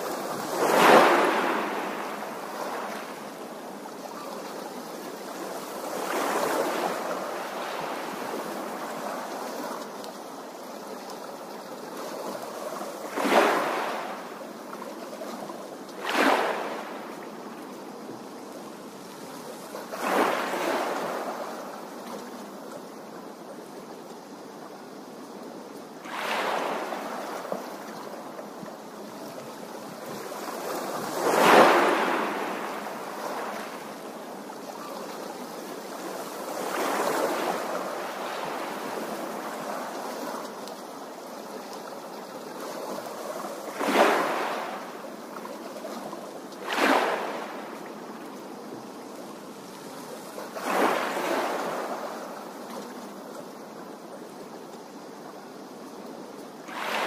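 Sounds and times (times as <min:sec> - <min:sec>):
small waves splashing on stones: 0:00.0 - 0:03.1, 0:13.1 - 0:14.2, 0:16.0 - 0:17.0, 0:26.1 - 0:27.6, 0:30.2 - 0:34.0, 0:43.7 - 0:45.0, 0:46.6 - 0:47.8.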